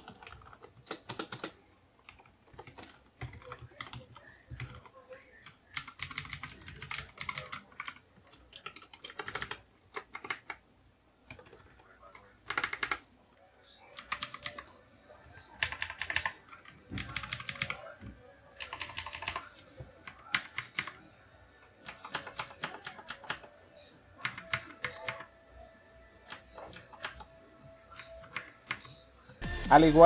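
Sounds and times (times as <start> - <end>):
fast typing on mechanical keyboard: 0.0 - 4.9, 5.7 - 10.6, 12.5 - 13.0, 14.0 - 14.6, 15.6 - 16.4, 17.0 - 17.8, 18.6 - 19.4, 21.9 - 23.5, 24.2 - 25.3, 26.3 - 27.2.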